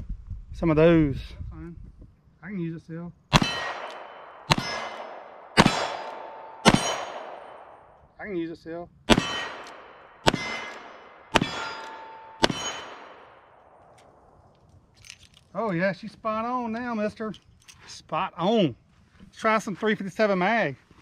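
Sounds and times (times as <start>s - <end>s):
revolver gunshots: 3.3s - 7.8s, 9.1s - 13.8s
metallic ring: 3.4s - 5.1s, 5.8s - 7.6s, 9.2s - 13.4s.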